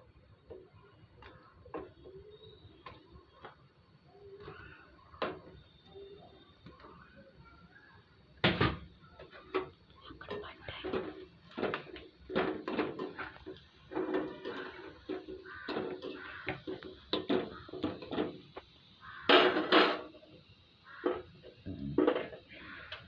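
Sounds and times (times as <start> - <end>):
food frying in oil: 9.3 - 23.0.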